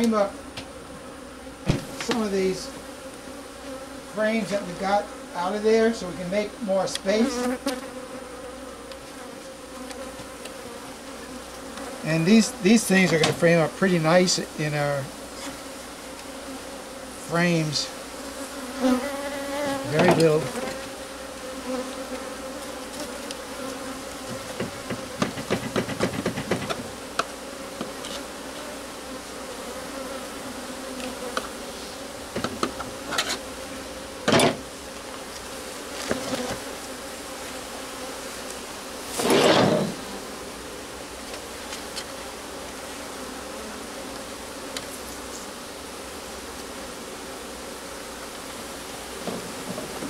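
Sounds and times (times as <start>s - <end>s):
bees buzzing: 0.0s - 50.0s
sharp knocks: 1.7s - 2.2s, 24.3s - 26.9s, 34.2s - 34.6s.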